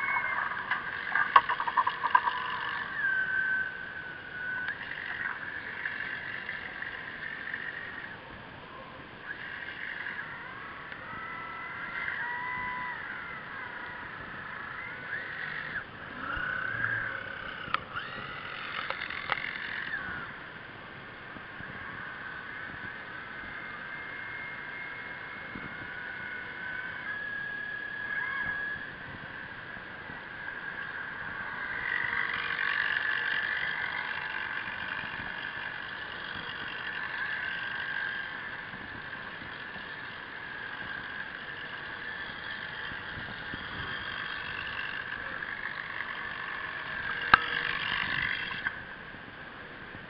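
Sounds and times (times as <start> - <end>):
electric motors whining underwater: 0.0 - 50.0.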